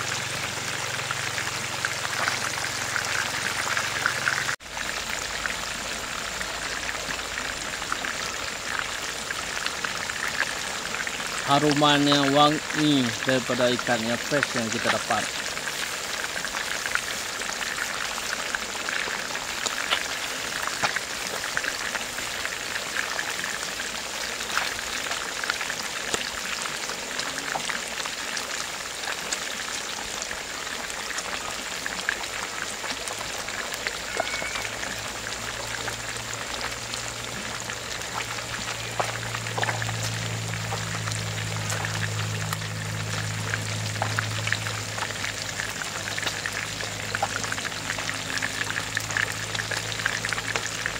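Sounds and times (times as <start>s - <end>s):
fish sizzling in hot oil: 0.0s - 50.9s
low steady hum: 34.0s - 50.9s.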